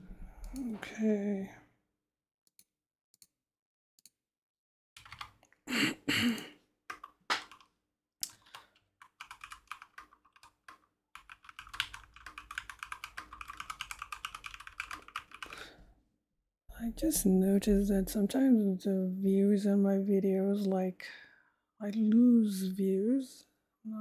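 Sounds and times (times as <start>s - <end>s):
typing on computer keyboard: 5.0s - 5.4s, 6.9s - 15.6s.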